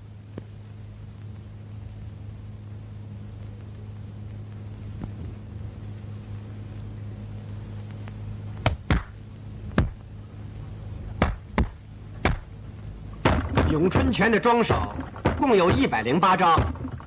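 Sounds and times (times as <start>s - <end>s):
steady low hum: 0.0s - 17.0s
sharp loud knocks: 11.2s - 12.5s, 13.2s - 17.0s.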